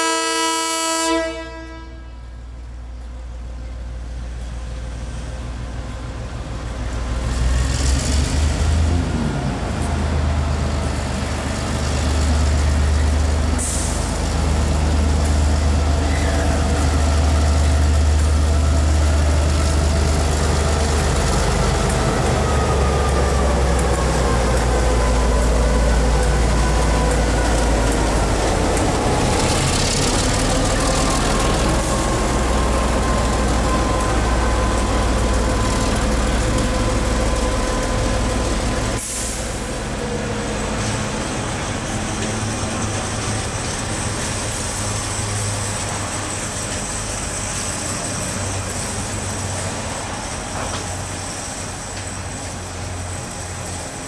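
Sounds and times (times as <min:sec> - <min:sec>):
diesel locomotives passing: 0:00.0 - 0:54.0.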